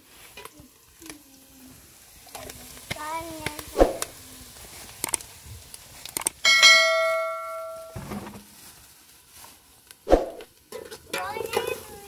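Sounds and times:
bright bell chime: 6.5s - 8.0s.

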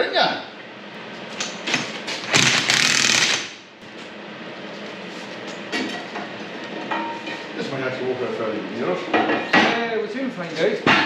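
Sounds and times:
loud mechanical rattle: 1.4s - 3.6s.

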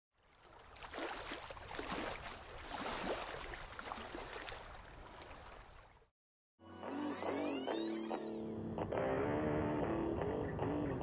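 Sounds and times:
water splashing around legs: 0.2s - 6.1s.

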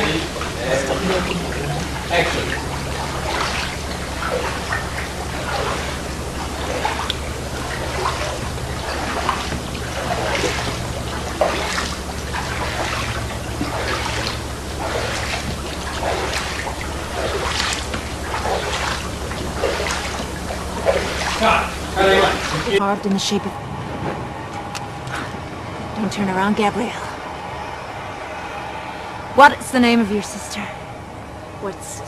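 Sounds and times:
water trickling and splashing: 0.0s - 23.3s
steady low hum: 0.0s - 32.0s.

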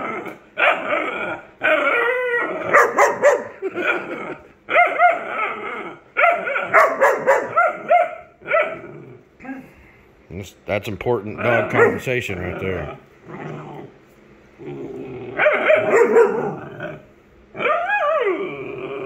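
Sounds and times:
puppy barking and yowling: 0.0s - 9.0s, 11.4s - 12.7s, 15.3s - 19.0s.

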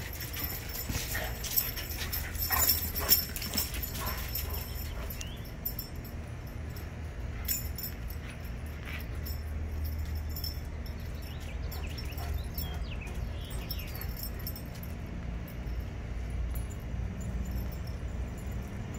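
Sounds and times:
collar tags jingling: 0.0s - 18.9s
dogs moving on concrete: 0.0s - 18.9s
steady low rumble: 0.0s - 18.9s
bird chirps: 5.2s - 5.5s, 11.1s - 14.2s.

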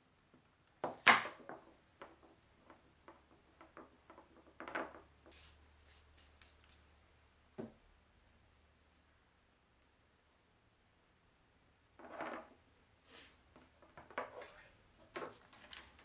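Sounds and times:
knocks on wooden worktable: 7.6s - 7.8s.

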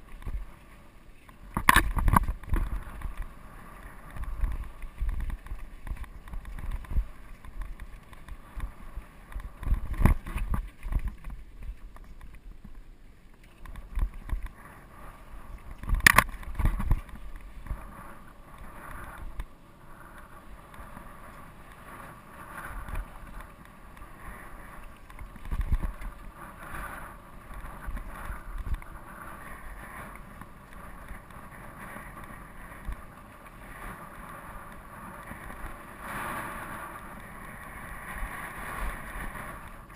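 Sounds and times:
wind on microphone: 0.0s - 12.8s, 13.6s - 39.9s
bike rattling: 0.0s - 39.9s
sharp knocks of bike on bumps: 1.5s - 3.0s.

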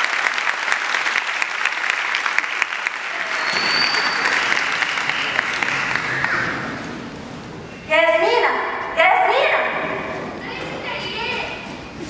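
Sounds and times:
audience applauding: 0.0s - 7.2s
high whistle: 3.2s - 5.6s.

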